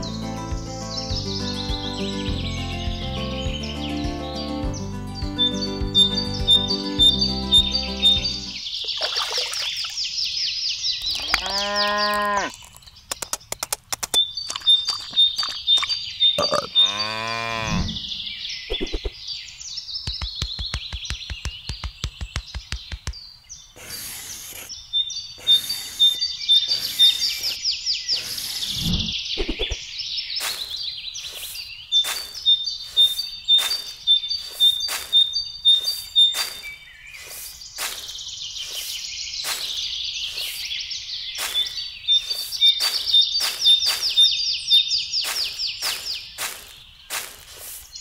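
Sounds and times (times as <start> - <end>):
small birds chirping: 0.0 - 48.0
metal palette knife scraping sand: 23.8 - 24.8, 25.4 - 28.9.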